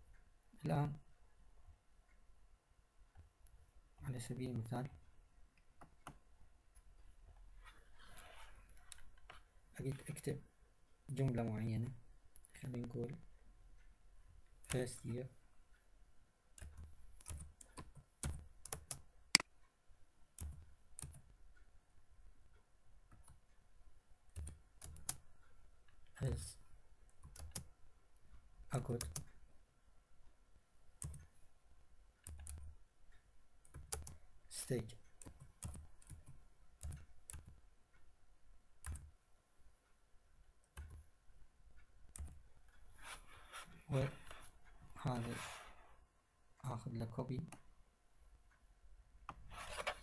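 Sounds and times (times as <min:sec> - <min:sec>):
typing on computer keyboard: 0:16.6 - 0:19.1, 0:24.3 - 0:25.2, 0:27.2 - 0:27.7, 0:28.8 - 0:29.3, 0:32.2 - 0:32.7, 0:33.6 - 0:34.2, 0:35.2 - 0:37.6, 0:38.8 - 0:39.1.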